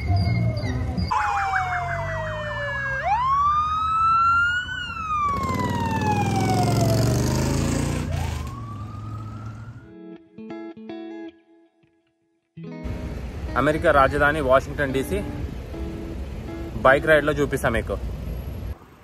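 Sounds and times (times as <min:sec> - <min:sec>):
fast siren yelp: 0:00.0 - 0:07.1, 0:07.9 - 0:10.0
vehicles rushing past: 0:00.0 - 0:09.8, 0:12.8 - 0:19.0
police siren wail: 0:00.0 - 0:10.1.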